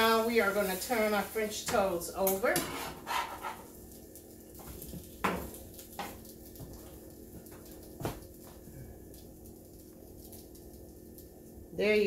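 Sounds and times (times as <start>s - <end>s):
faint steady hum: 0.0s - 12.0s
utensil knocking on frying pan: 5.2s - 6.2s.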